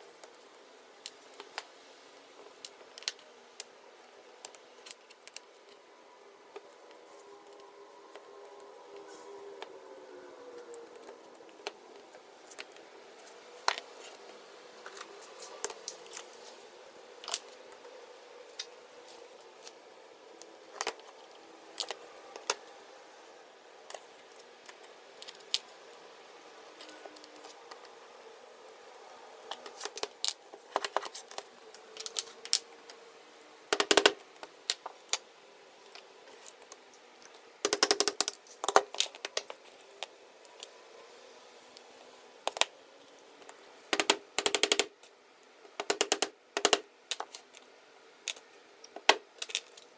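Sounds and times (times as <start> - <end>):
tools clicking and knocking: 33.7 - 34.2, 45.8 - 47.3.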